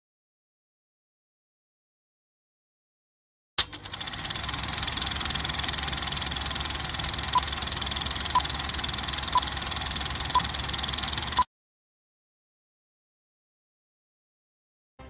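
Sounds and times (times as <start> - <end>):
film projector clattering: 3.6 - 11.5
short countdown beeps: 8.3 - 8.6, 9.3 - 9.5, 10.3 - 10.6.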